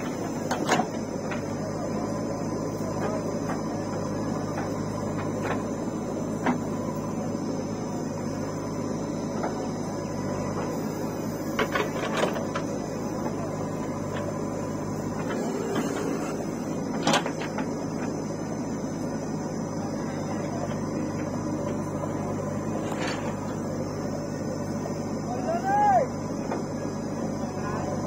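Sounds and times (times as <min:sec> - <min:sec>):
backhoe diesel engine running: 0:00.0 - 0:28.0.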